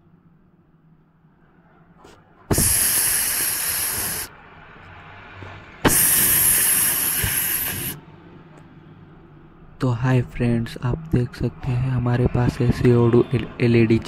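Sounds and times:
carbon dioxide jet blasts hissing: 0:02.5 - 0:04.3, 0:05.8 - 0:08.0.

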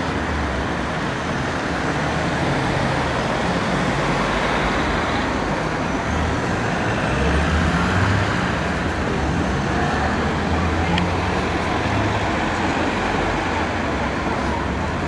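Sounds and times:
cars driving past: 0:00.0 - 0:15.0.

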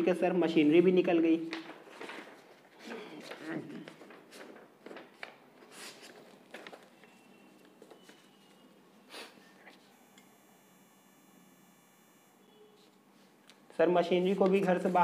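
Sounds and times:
book pages rustling: 0:01.5 - 0:08.7.

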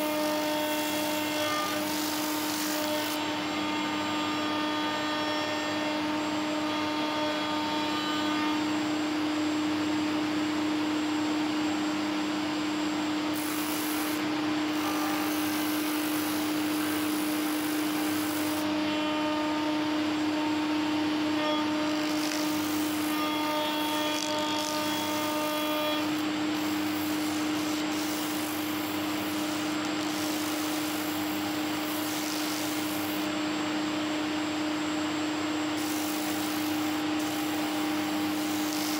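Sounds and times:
sander motor hum: 0:00.0 - 0:38.9
hissing scraping on sanding drum: 0:13.4 - 0:14.2, 0:14.8 - 0:18.6, 0:22.0 - 0:33.3, 0:35.8 - 0:38.9.

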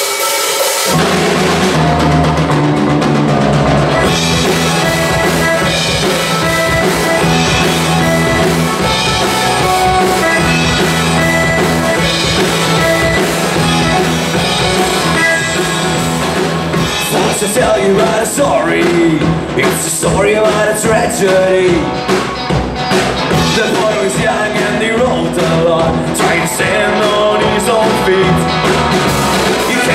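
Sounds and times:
accordion chords: 0:00.0 - 0:19.5
drum kit beat: 0:00.0 - 0:29.9
guitars holding chords: 0:00.9 - 0:29.9.

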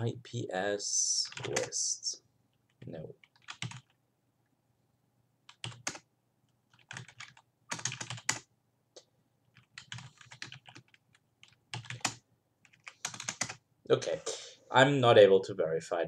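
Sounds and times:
computer keyboard typing: 0:01.2 - 0:01.9, 0:02.7 - 0:04.0, 0:05.5 - 0:06.1, 0:06.7 - 0:08.5, 0:09.4 - 0:13.6.

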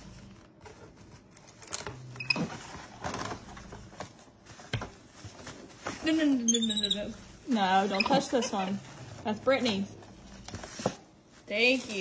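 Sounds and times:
plastic cling wrap crinkling: 0:00.1 - 0:12.0.

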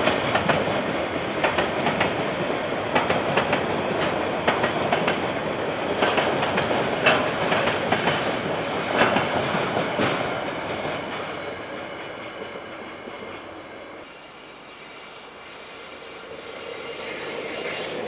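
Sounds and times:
railway wagons rolling past: 0:00.0 - 0:18.0
wheels clicking over rail joints: 0:06.0 - 0:08.3.

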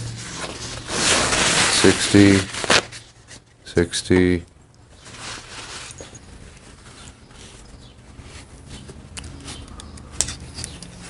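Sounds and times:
small metal shims clicking: 0:09.1 - 0:11.0.

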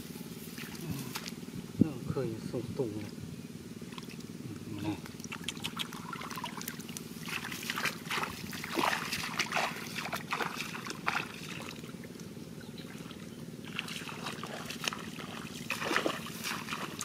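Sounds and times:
low background hum: 0:00.0 - 0:17.0
feet splashing through water: 0:05.0 - 0:17.0.

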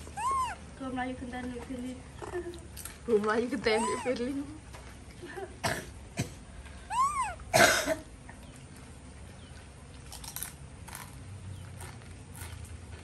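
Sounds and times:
monkey squealing: 0:00.0 - 0:00.6, 0:03.6 - 0:04.2, 0:06.9 - 0:07.5
faint clicks and rustles: 0:00.2 - 0:05.5
harsh cough-like burst: 0:05.6 - 0:08.1.

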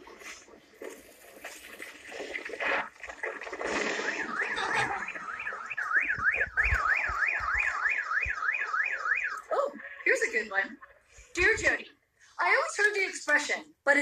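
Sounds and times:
car alarm warbling siren: 0:03.6 - 0:11.2.

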